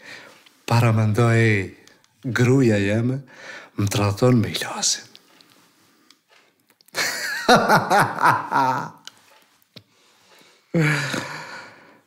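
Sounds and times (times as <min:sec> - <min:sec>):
man laughing: 0:07.0 - 0:09.1, 0:10.8 - 0:11.6.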